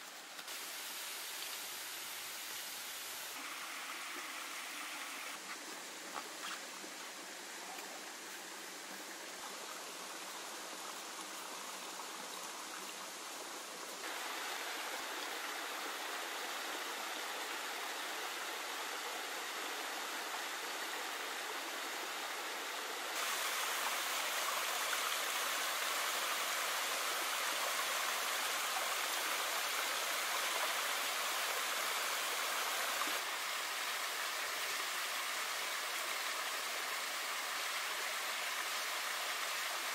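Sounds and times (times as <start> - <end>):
waterfall splashing over rocks: 0.0 - 5.5, 14.0 - 39.9.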